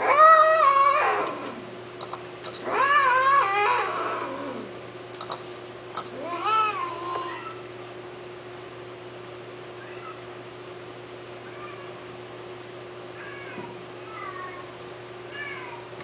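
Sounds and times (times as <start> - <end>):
cat meowing: 6.1 - 7.6, 9.8 - 10.2, 11.5 - 11.9, 13.2 - 14.7, 15.3 - 15.9.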